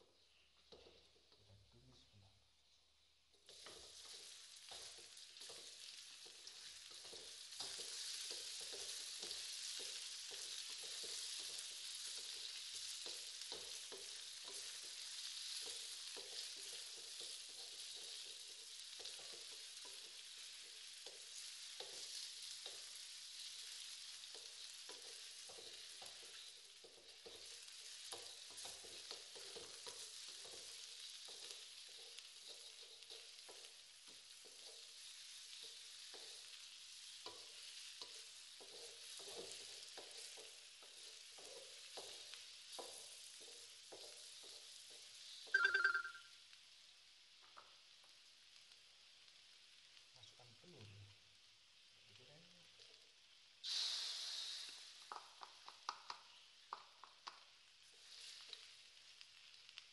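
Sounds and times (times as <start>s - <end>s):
greens sizzling in a wok: 0.0s - 59.9s
spatula scraping a wok: 3.4s - 45.5s, 57.8s - 59.6s.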